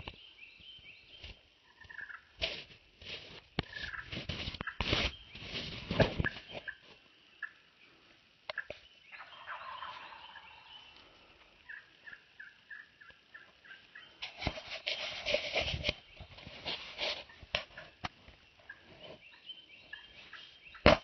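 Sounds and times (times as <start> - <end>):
wild turkey gobbling: 1.7 - 2.3, 8.5 - 14.2.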